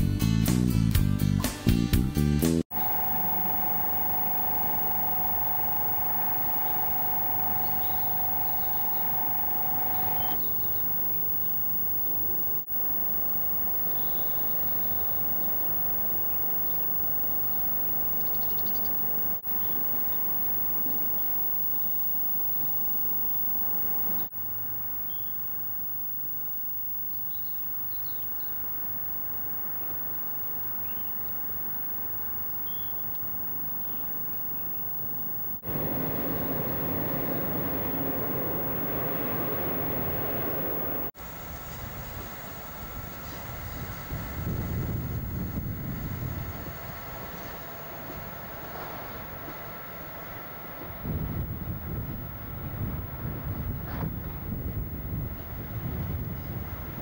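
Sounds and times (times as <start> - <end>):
locomotive machinery whine: 2.7 - 41.2
steady hiss: 2.7 - 49.3
faint bird chirps: 2.8 - 21.6, 25.0 - 25.5, 27.2 - 41.1.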